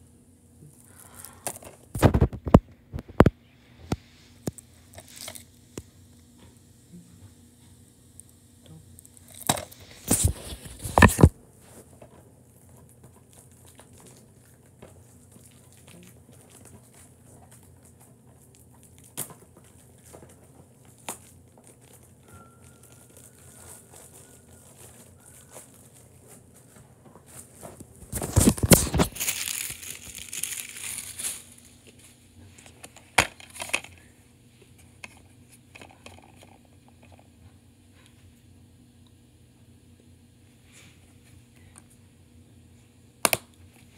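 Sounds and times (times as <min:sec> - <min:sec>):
plastic crinkling: 0:12.5 - 0:34.1.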